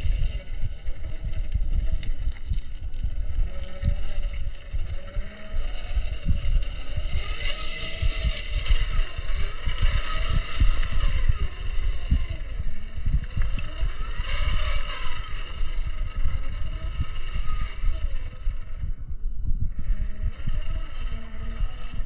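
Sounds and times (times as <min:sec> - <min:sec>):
electric motor and gear whine: 0:00.0 - 0:22.0
heavy uneven low rumble: 0:00.0 - 0:22.0.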